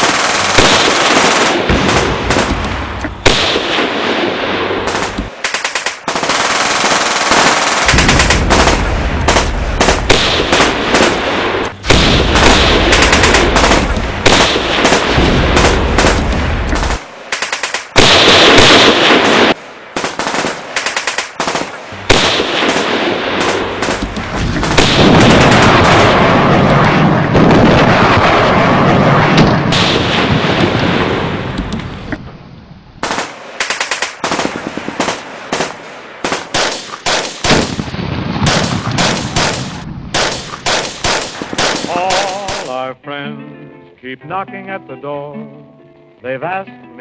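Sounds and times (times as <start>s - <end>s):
machine-gun bursts: 0.0s - 2.5s, 4.9s - 11.2s, 11.9s - 26.5s
rifle shots: 0.0s - 32.2s, 33.0s - 42.7s.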